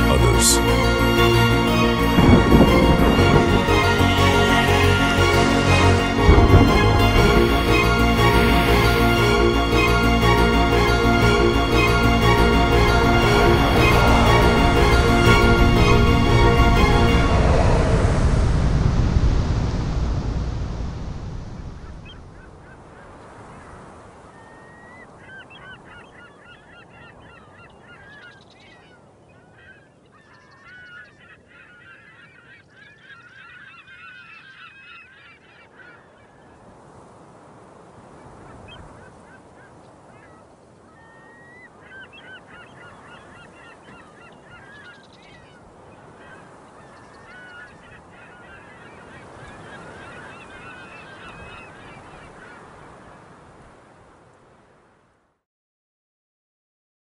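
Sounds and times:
sea surf: 0.0 - 28.1, 34.7 - 55.0
flock of birds calling: 24.4 - 36.7, 38.2 - 53.6.

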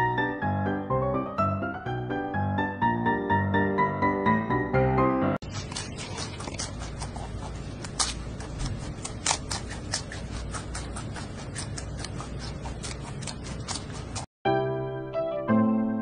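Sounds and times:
low background hum: 5.4 - 14.3
panda crunching bamboo: 5.4 - 14.3.

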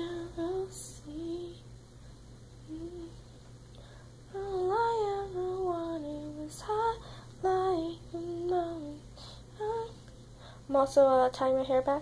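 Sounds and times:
woman singing wordless tune: 0.0 - 1.7, 2.6 - 3.3, 4.3 - 10.1.

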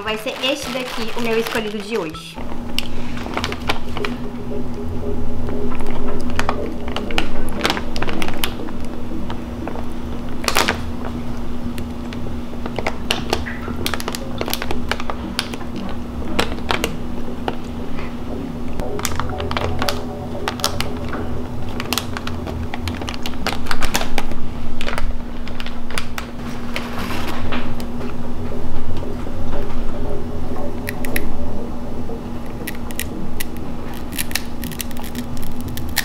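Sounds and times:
plastic bag crinkling open: 0.0 - 2.3, 33.9 - 36.0.

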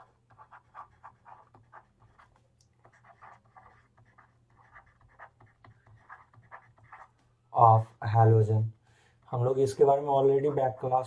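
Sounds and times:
stylus scratching on a screen: 0.0 - 7.2, 9.4 - 11.0.

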